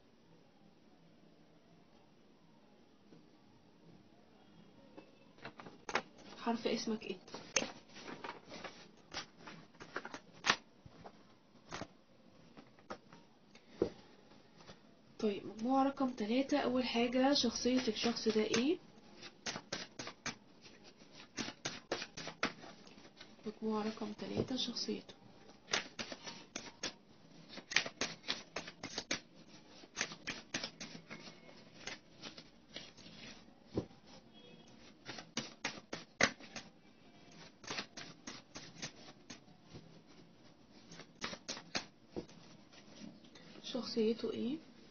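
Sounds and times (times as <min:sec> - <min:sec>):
cards being shuffled: 0:07.3 - 0:11.1, 0:17.4 - 0:24.1, 0:25.7 - 0:33.9, 0:34.8 - 0:36.7, 0:37.4 - 0:43.2.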